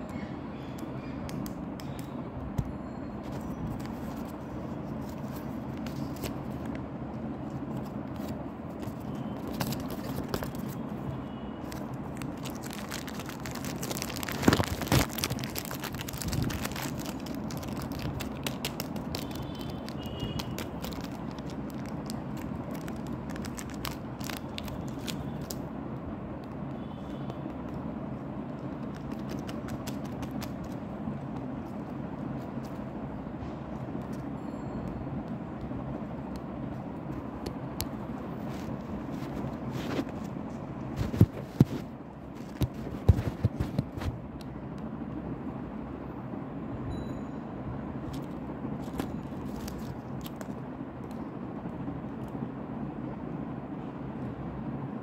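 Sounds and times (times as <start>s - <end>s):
packaging crinkling: 7.7s - 10.8s, 11.6s - 25.7s, 28.7s - 30.8s, 48.1s - 50.6s.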